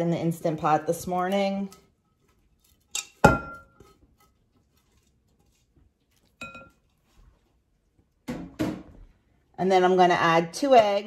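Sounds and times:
kitchenware clinking: 0.6s - 7.1s.

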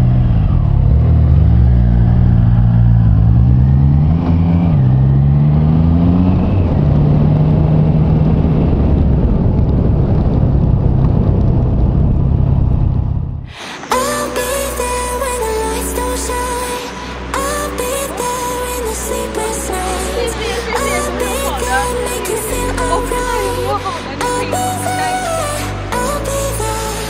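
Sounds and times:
motorcycle engine shifting gears: 0.0s - 13.4s
wind rush on microphone: 5.7s - 14.2s.

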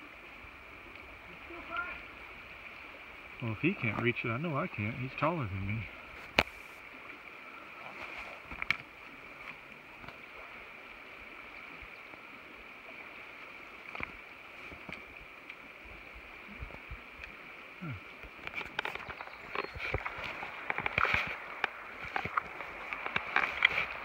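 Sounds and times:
river running over rocks: 0.0s - 24.0s.

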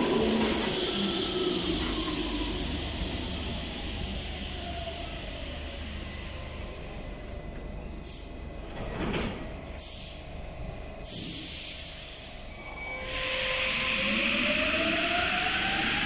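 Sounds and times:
train rumble: 0.0s - 16.0s
air hiss bursts: 9.8s - 10.3s, 11.1s - 12.4s.

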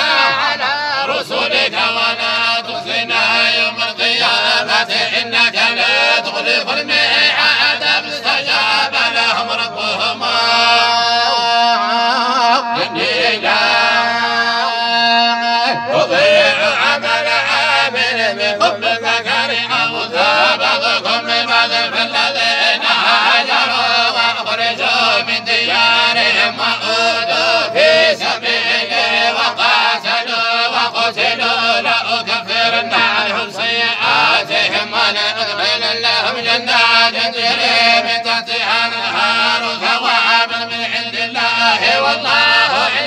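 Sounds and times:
men chanting in unison: 0.0s - 43.0s.

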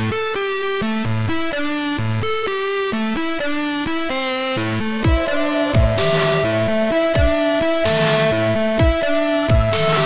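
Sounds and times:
held synth notes: 5.0s - 10.0s
deep kick drums: 5.1s - 10.0s.

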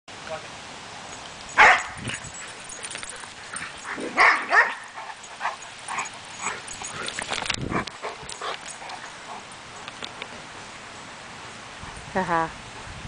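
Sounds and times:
dog barking and yipping: 1.5s - 7.0s.

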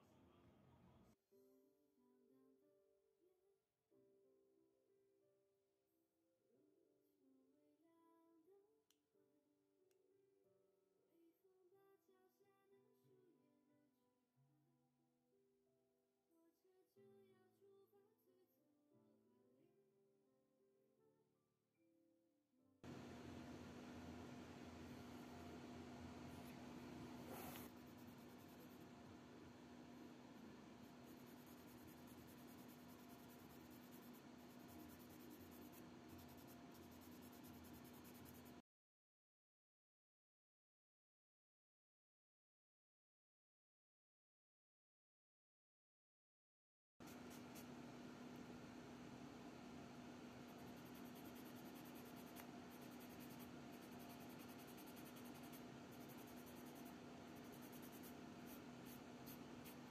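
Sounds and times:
steady low hum: 22.8s - 38.6s, 47.1s - 59.9s
sanding sponge scratching plastic: 50.6s - 59.9s.

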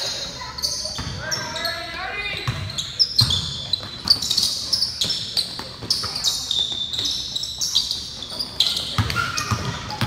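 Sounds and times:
sneakers squeaking on court: 0.0s - 10.0s
basketball bouncing on gym floor: 0.8s - 1.4s, 2.3s - 7.2s, 8.6s - 10.0s.

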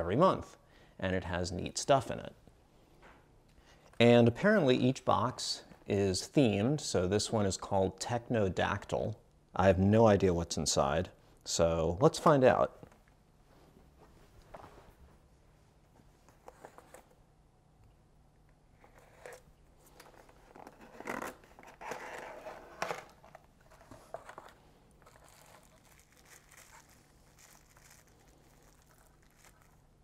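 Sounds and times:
bubble-wrap bag crinkling: 23.0s - 30.0s.

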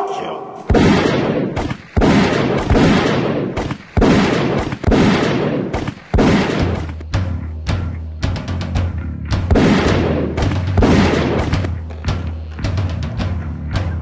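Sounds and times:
echoing handgun shots: 0.4s - 7.0s, 9.5s - 11.7s
music with low bass: 6.5s - 14.0s.

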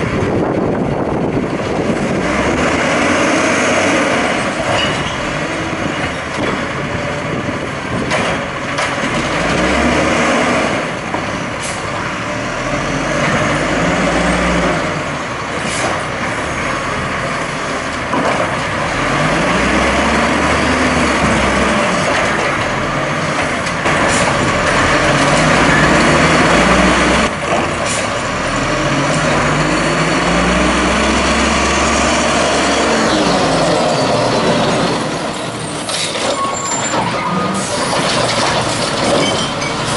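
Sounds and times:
garbage truck engine revving: 0.0s - 39.9s
hydraulic arm emptying a cart: 35.5s - 39.9s.

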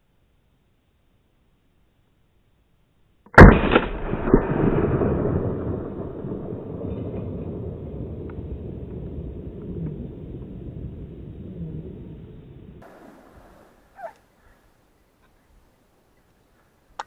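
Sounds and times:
loud gunshot: 3.4s - 7.8s
quieter gunshot crack: 3.4s - 10.0s
rumbling echo off hillsides: 3.4s - 15.0s.

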